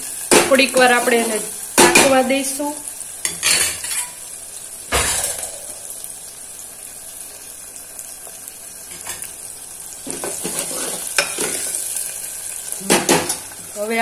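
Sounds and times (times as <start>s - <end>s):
onion sizzling in hot oil: 0.0s - 14.0s
spoon scraping pot: 10.1s - 11.8s.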